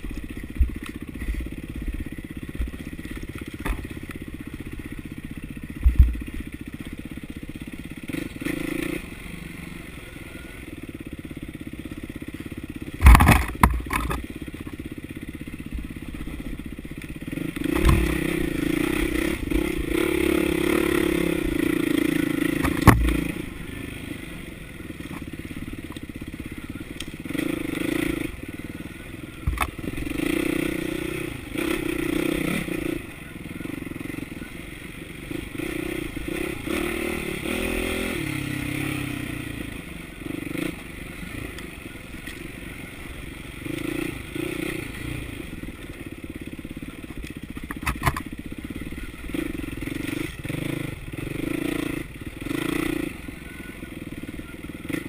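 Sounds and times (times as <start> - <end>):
dirt bike engine revving: 0.0 - 14.5, 15.1 - 55.0
bike clattering and knocking: 13.0 - 14.2.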